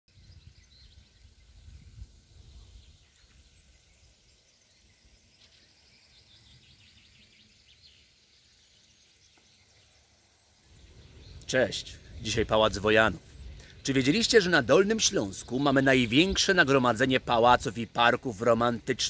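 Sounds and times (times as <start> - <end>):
wind rumble on microphone: 0.1 - 4.4, 10.7 - 13.8
faint bird chirps: 0.1 - 19.0.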